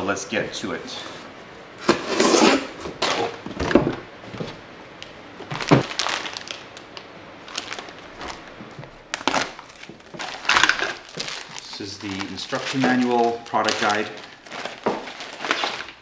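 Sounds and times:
plastic bag rustling: 5.3 - 16.0
tape and flap thumps: 5.4 - 5.9.

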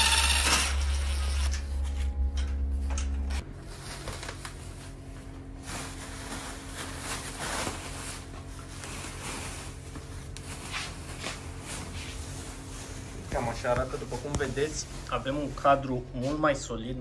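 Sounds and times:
bubble wrap rustling and crinkling: 3.4 - 16.0.

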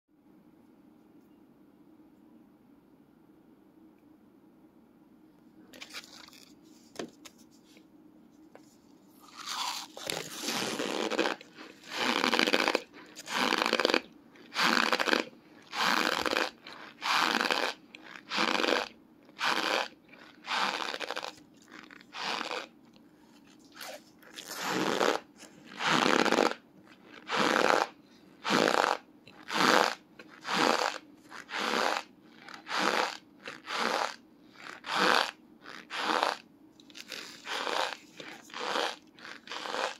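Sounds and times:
cornstarch chunks crunching: 9.2 - 22.7, 23.7 - 27.9, 28.5 - 39.9.

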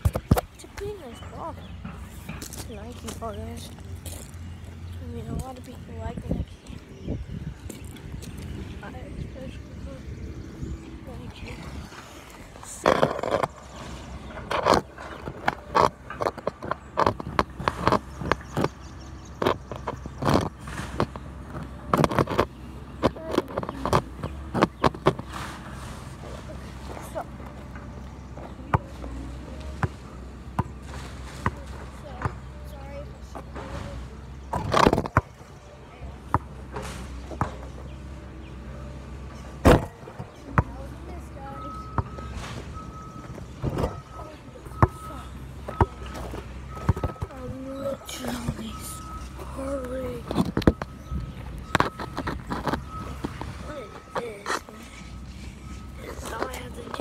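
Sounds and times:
basketball bouncing on ground: 0.0 - 0.9, 29.6 - 30.8, 36.3 - 36.6, 37.3 - 37.7, 39.6 - 40.9, 44.7 - 48.6.

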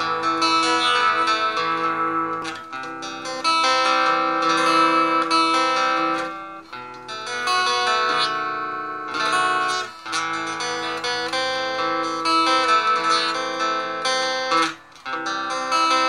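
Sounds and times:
clean electric guitar melody: 0.0 - 16.0.

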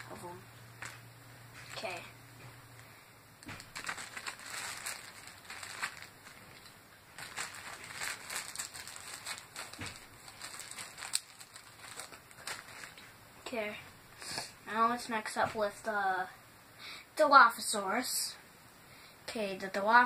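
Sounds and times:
plastic toy pieces rustling in bag: 3.6 - 13.0.

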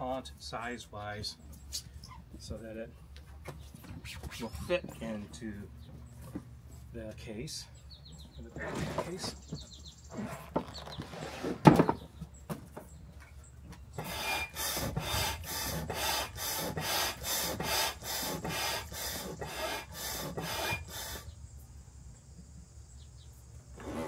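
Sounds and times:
hand pump whooshing strokes: 14.0 - 21.3.

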